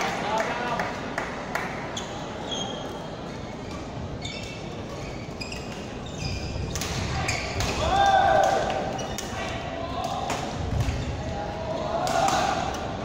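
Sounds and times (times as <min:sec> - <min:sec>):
hall background noise: 0:00.0 - 0:13.0
shoes squeaking on court: 0:02.0 - 0:07.6, 0:08.9 - 0:09.4.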